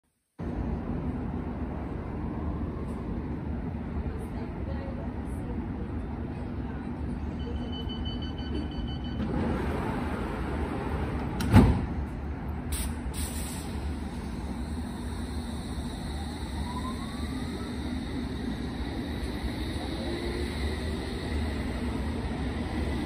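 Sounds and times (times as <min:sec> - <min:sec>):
door-closing alarm beeps: 0:07.4 - 0:09.4
sliding doors thudding shut: 0:11.3 - 0:12.0
train motors rising whine: 0:13.6 - 0:23.0.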